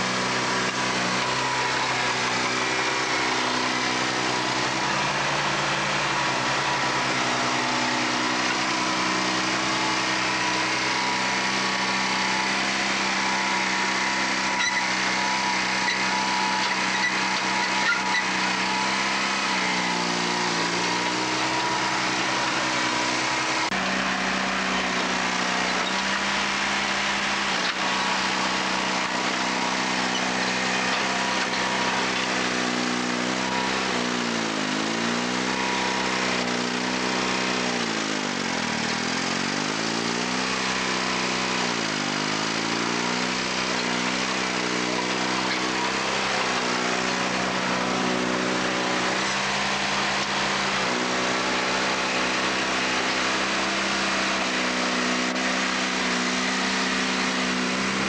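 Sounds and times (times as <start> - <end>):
diesel engine lugging under load: 0.0 - 41.8.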